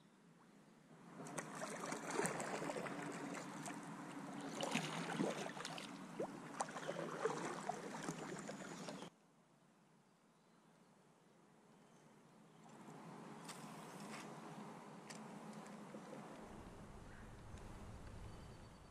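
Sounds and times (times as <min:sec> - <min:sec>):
water splashing against a hull: 0:01.1 - 0:09.1.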